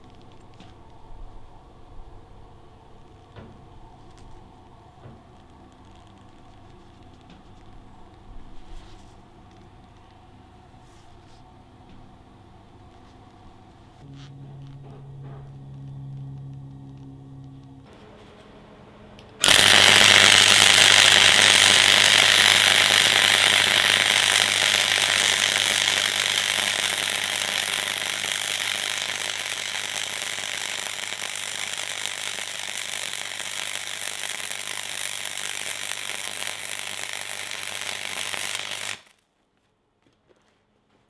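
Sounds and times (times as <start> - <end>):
low welder hum: 0.0 - 39.3
welding arc sizzling: 19.2 - 39.2.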